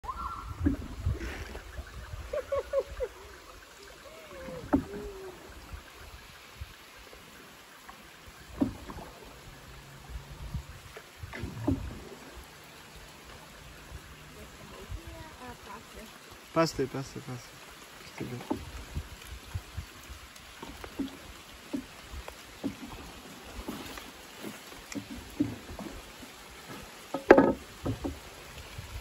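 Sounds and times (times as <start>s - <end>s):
short whistled calls: 0.0s - 0.6s
canoe moving through water: 0.0s - 29.0s
paddle knocking against hull: 4.5s - 5.1s, 8.4s - 9.2s, 11.2s - 12.3s, 18.2s - 19.0s, 20.6s - 28.4s.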